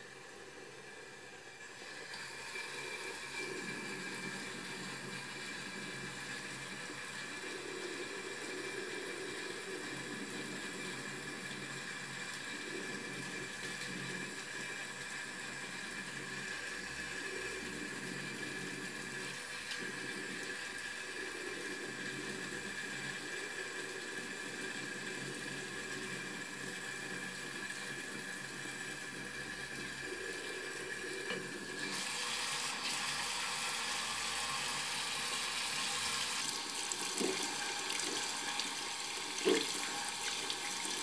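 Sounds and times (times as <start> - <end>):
tap water running into sink: 23.8 - 41.0.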